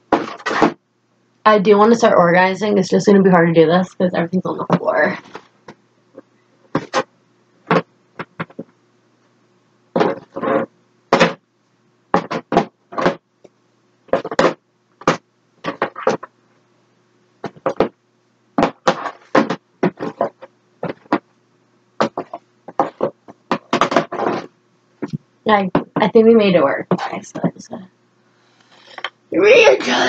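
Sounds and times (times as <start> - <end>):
objects knocking and clattering: 7.7 - 8.7, 12.1 - 13.2, 14.1 - 16.3, 17.4 - 18.0, 18.6 - 21.2, 22.0 - 26.1.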